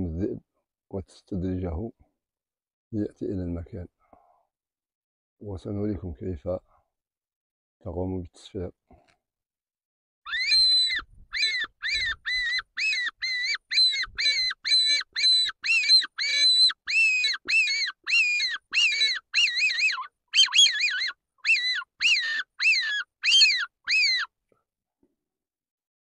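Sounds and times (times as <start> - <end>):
predator call high squeals: 10.3 - 24.3.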